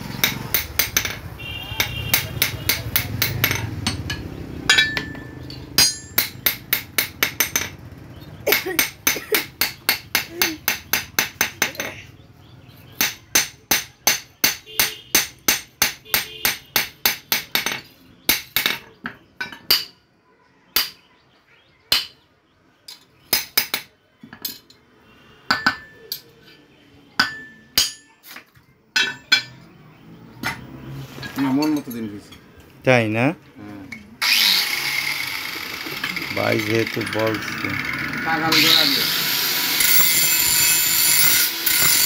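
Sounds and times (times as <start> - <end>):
hammer striking metal on anvil: 0.2 - 7.8, 13.0 - 20.0, 27.2 - 28.2.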